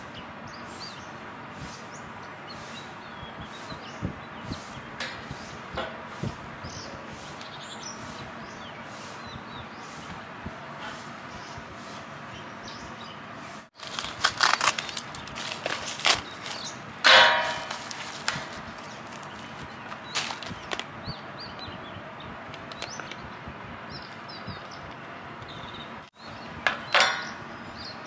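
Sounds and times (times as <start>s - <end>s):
packaging rustling and clicks: 13.8s - 16.8s, 17.6s - 20.9s.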